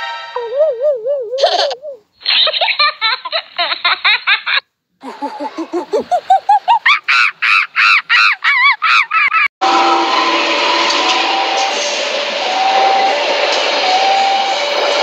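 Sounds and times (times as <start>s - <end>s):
cartoonish laughter: 0.4s - 9.5s.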